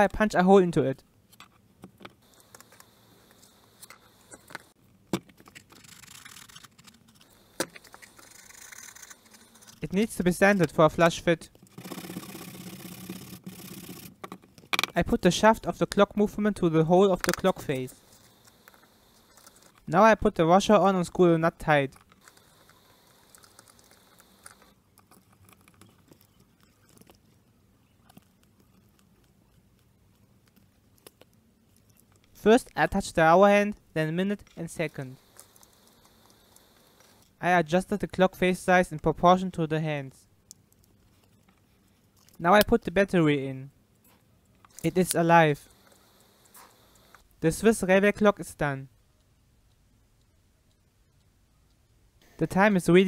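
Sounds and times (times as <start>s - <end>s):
tool clicking and scraping cardboard: 3.9s - 9.8s, 11.5s - 15.0s
scratchy rasping: 5.4s - 10.1s, 11.6s - 14.2s
faint clicks and rustles: 17.2s - 19.9s, 21.9s - 32.4s, 34.4s - 37.4s, 40.4s - 42.4s, 44.0s - 47.3s.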